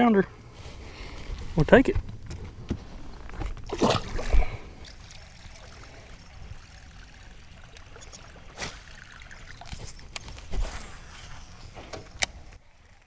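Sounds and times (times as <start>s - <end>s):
fish splashing: 3.6s - 11.6s
lure sputtering across water: 3.6s - 13.0s.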